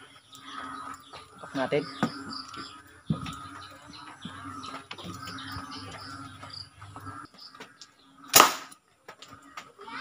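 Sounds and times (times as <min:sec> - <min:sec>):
toy gun bang: 0:08.3 - 0:08.7.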